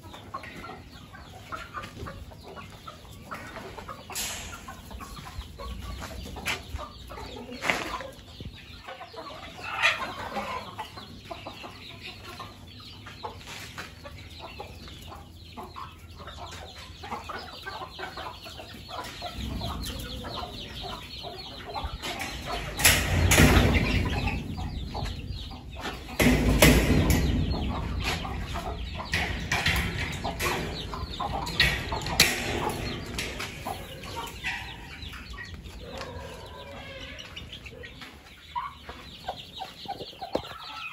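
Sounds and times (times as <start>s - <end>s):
chickens clucking: 0.0s - 40.9s
low rumbling noise: 22.2s - 35.8s.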